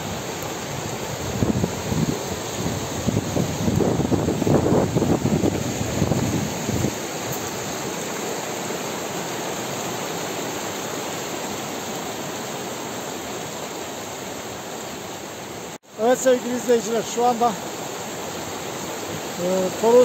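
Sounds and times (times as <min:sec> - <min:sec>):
wind buffeting microphone: 0:00.0 - 0:07.8
stream rushing over rocks: 0:00.0 - 0:20.0.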